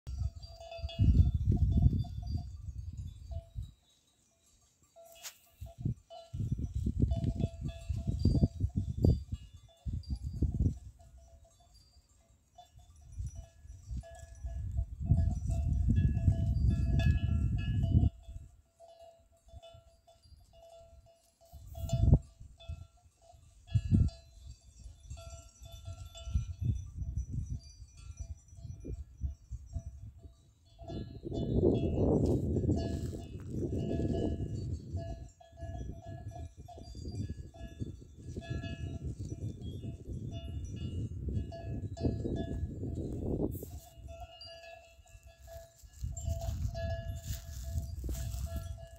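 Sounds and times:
wind rumble on microphone: 0:00.0 - 0:03.8, 0:05.6 - 0:11.9, 0:12.6 - 0:18.6, 0:19.5 - 0:48.9
goat bell clinking: 0:00.1 - 0:48.9.

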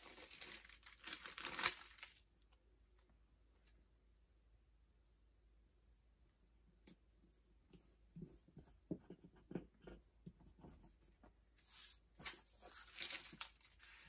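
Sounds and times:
paper rustling and sliding: 0:11.6 - 0:14.0.

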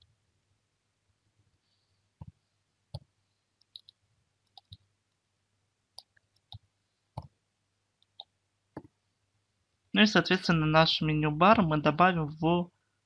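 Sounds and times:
mouse clicks: 0:03.0 - 0:04.8.

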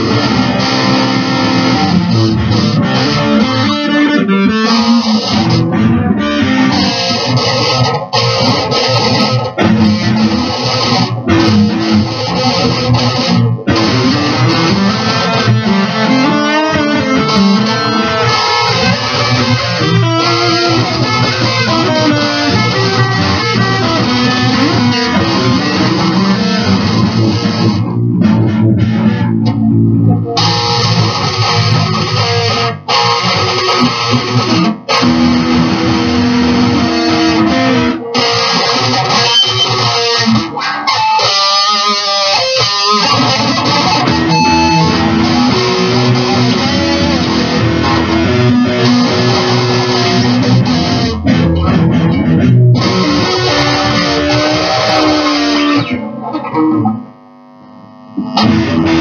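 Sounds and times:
live band with electric guitar: 0:00.0 - 0:59.0.

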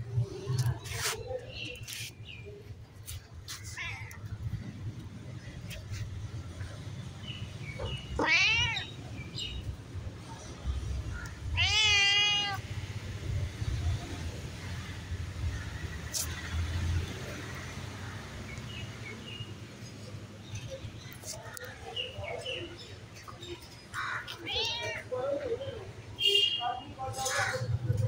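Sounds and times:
cat meowing: 0:07.9 - 0:08.9, 0:11.4 - 0:12.6, 0:24.3 - 0:25.1.

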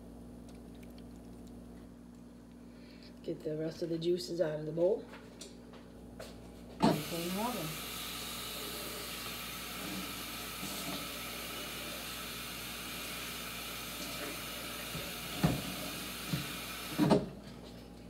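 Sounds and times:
tap running: 0:13.9 - 0:17.3.

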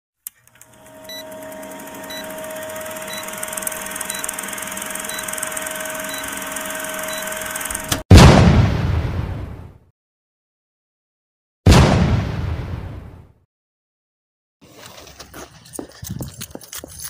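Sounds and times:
projector whirring rattle: 0:00.4 - 0:08.0
loud explosion bang: 0:08.1 - 0:09.8, 0:11.7 - 0:13.3.

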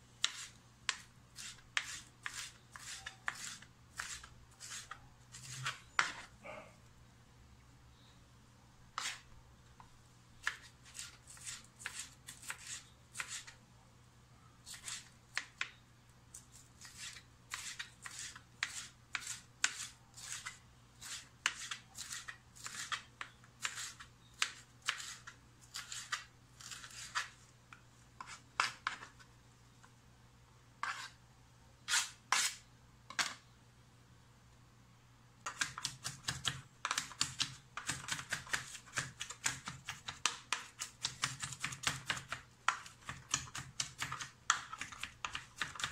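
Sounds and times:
rapid knife chopping: 0:35.5 - 0:45.9.

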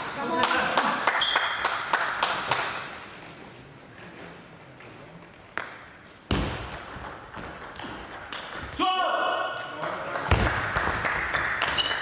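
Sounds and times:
table tennis ball bouncing: 0:05.5 - 0:08.8, 0:09.5 - 0:12.0.

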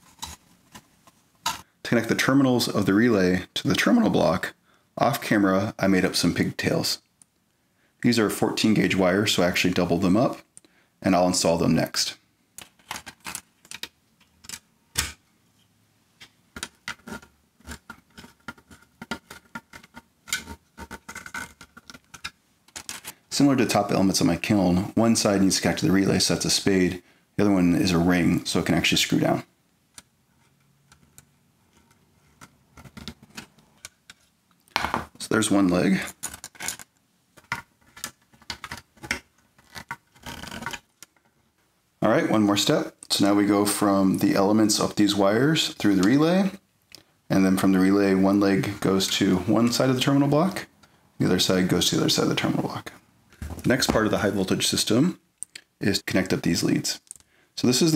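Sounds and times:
metallic clicks of connectors: 0:57.0 - 0:57.3.

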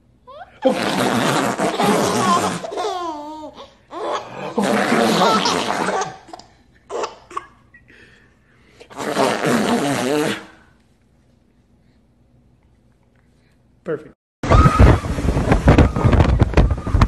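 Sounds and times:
baby laughing: 0:00.3 - 0:07.6.

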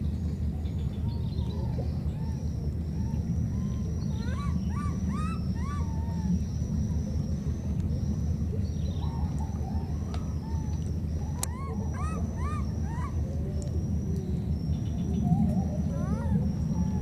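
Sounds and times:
insects buzzing: 0:00.0 - 0:17.0
baby monkey calling: 0:02.2 - 0:06.4, 0:09.2 - 0:13.7, 0:15.2 - 0:17.0.

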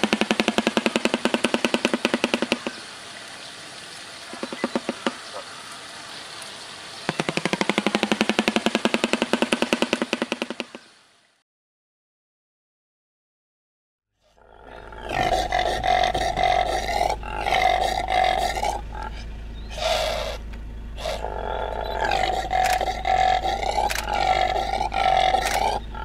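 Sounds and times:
impala roaring: 0:14.2 - 0:26.0.

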